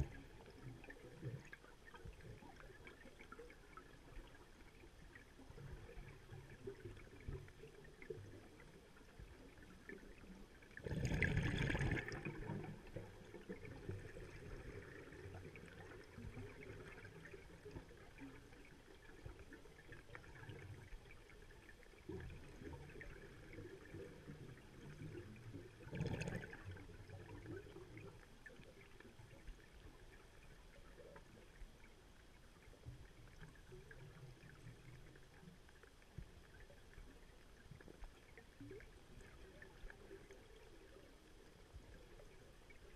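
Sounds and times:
low underwater rumble: 0.0 - 42.9
underwater air bubbles: 0.0 - 42.9.

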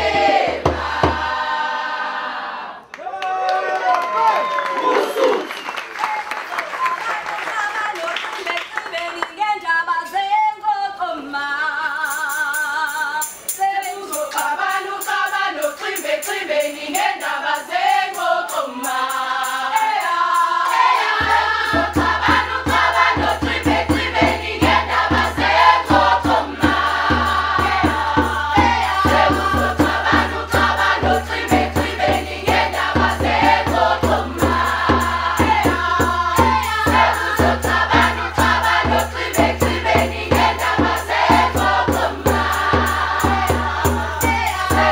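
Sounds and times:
mixed choir singing: 0.0 - 2.9, 13.8 - 44.9
even beat: 21.2 - 44.9.

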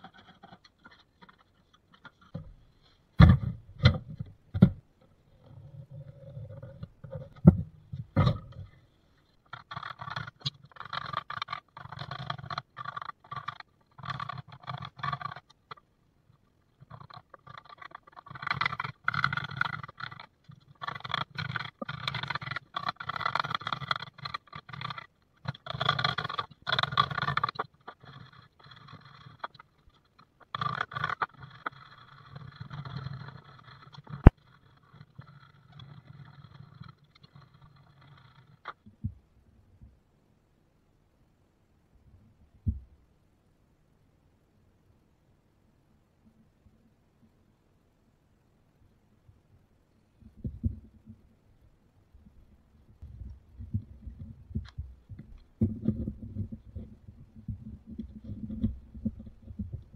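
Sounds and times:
chisel scraping wood: 0.0 - 4.8, 16.7 - 38.8.

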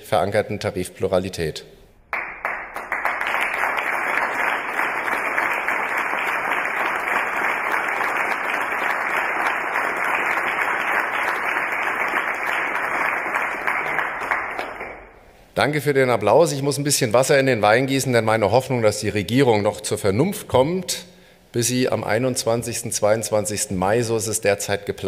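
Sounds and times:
audience applauding: 2.1 - 15.2.

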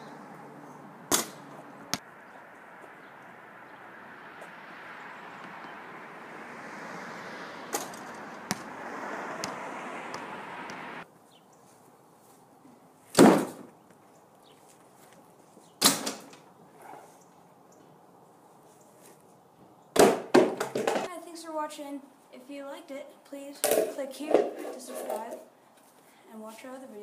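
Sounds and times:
street noise: 0.0 - 27.0
wind: 0.0 - 27.0
basketball thudding on hard surfaces: 7.8 - 8.7, 20.0 - 21.0.

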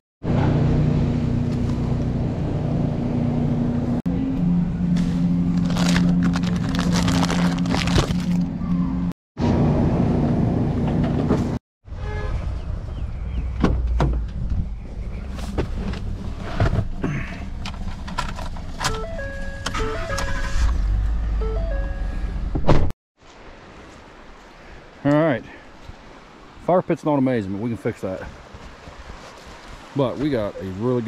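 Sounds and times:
stepped chime tones: 18.9 - 20.6.

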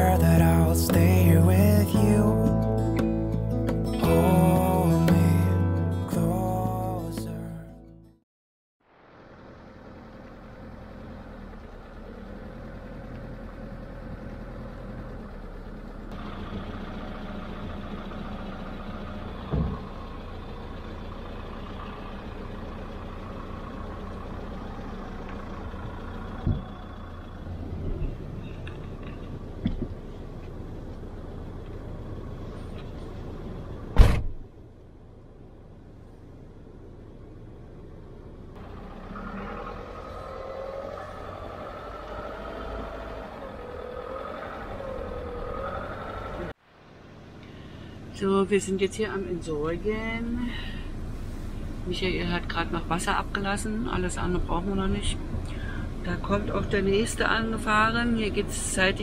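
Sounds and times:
van engine idling: 0.0 - 7.4, 8.9 - 59.0
loud thump: 19.5 - 19.9, 26.4 - 26.7, 34.0 - 34.5.

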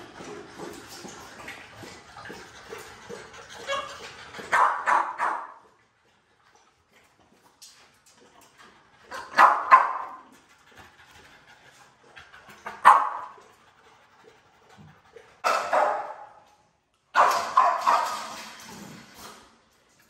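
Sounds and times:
dogs barking: 1.8 - 5.7, 9.1 - 10.3, 12.6 - 13.4, 15.4 - 16.4, 17.1 - 18.4.

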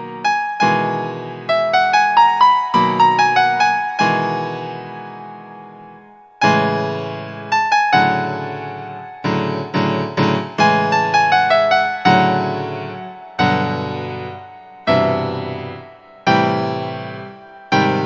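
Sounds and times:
keyboard playing chords: 0.0 - 18.0.

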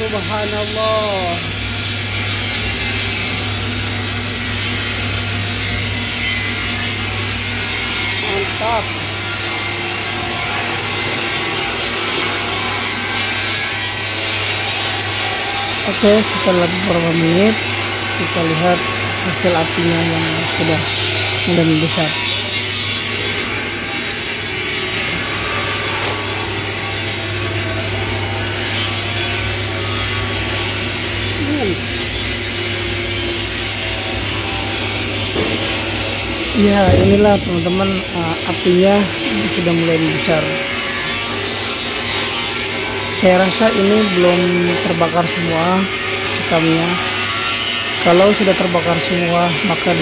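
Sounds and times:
furnace fire humming and hissing: 0.0 - 50.0
low machine hum: 29.3 - 40.4.

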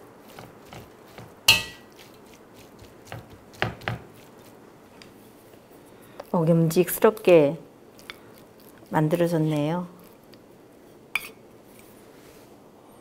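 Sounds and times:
spoon clinking against metal bowl: 1.5 - 1.9.

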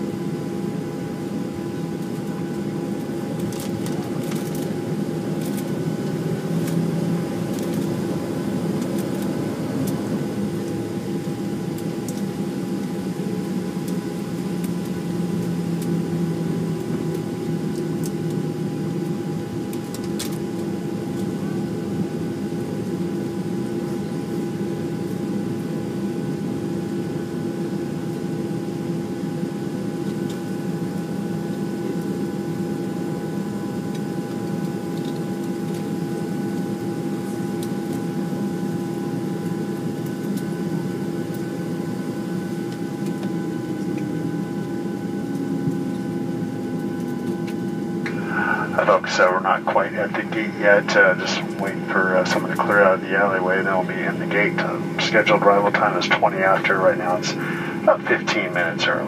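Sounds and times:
jet engines idling: 0.0 - 17.1, 47.4 - 59.0
air-conditioning hiss: 48.0 - 59.0.

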